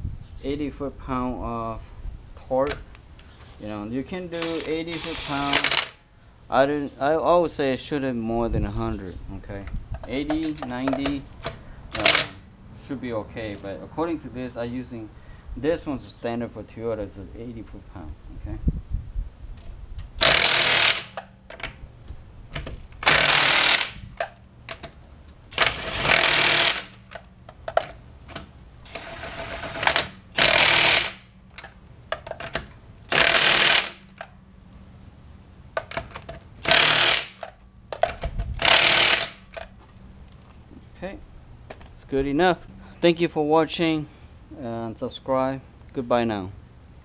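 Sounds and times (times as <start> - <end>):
impact wrench hammering lug nuts: 4.4 - 6.0, 12.0 - 12.4, 20.2 - 21.7, 22.6 - 25.0, 25.6 - 27.9, 28.9 - 31.3, 32.2 - 34.3, 35.8 - 39.6.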